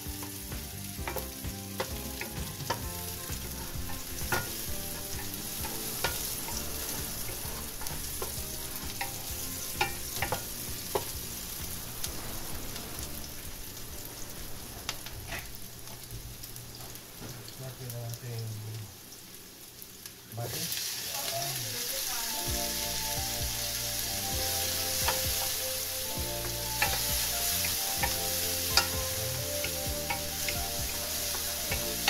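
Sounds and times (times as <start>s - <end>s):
onions sizzling in hot oil: 0.0s - 32.0s
wooden spoon knocking pan: 1.0s - 11.3s, 28.0s - 32.0s.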